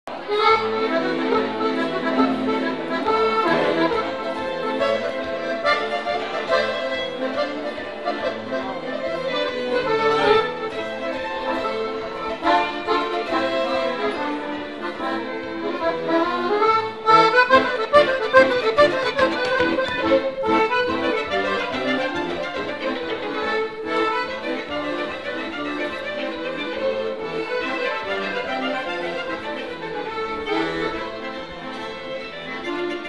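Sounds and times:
accordion: 0.1s - 33.0s
violin: 0.1s - 33.0s.

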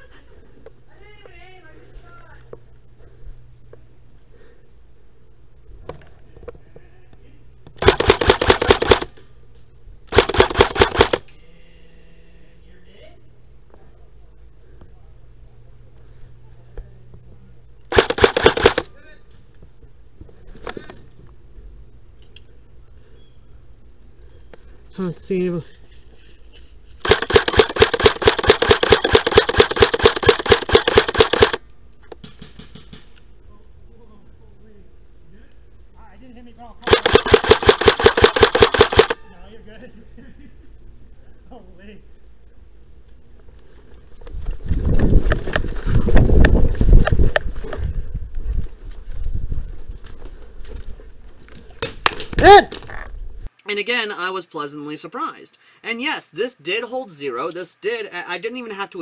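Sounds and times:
airsoft gun firing rapid burst: 7.8s - 9.1s, 10.1s - 11.2s, 17.9s - 18.9s, 27.0s - 31.6s, 36.8s - 39.2s.

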